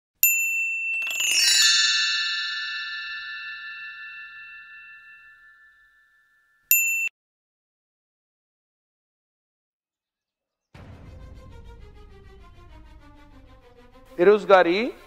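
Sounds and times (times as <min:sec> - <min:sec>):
bright bell-like chime: 0:00.2 - 0:07.1.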